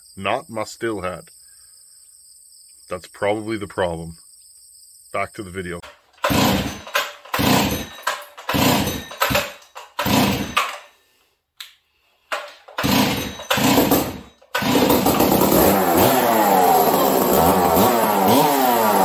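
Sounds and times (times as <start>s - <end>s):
recoil starter pulls: 5.8s - 10.9s, 12.3s - 19.0s
chainsaw engine running: 6.2s - 10.8s, 12.7s - 19.0s.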